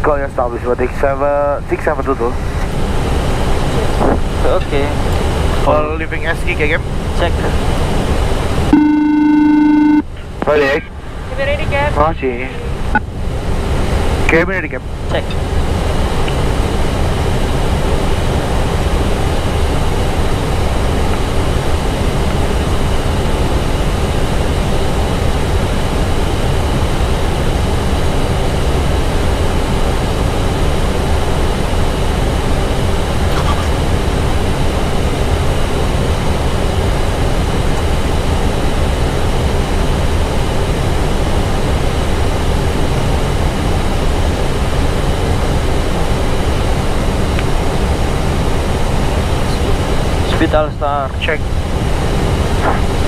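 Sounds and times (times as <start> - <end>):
airflow and air conditioning rush: 0.0 - 53.0
faint steady tones: 8.6 - 13.2.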